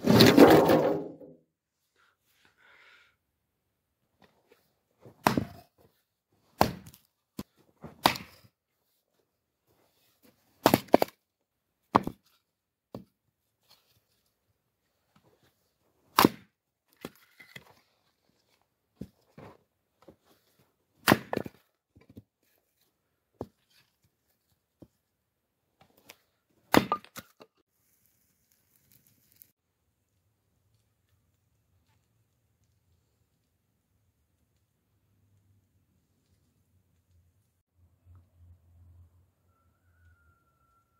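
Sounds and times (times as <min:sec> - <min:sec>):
axe chopping firewood: 0:05.2 - 0:05.7, 0:06.6 - 0:08.5, 0:10.6 - 0:11.2, 0:11.9 - 0:12.3, 0:16.1 - 0:17.2, 0:21.0 - 0:21.6, 0:26.7 - 0:27.4.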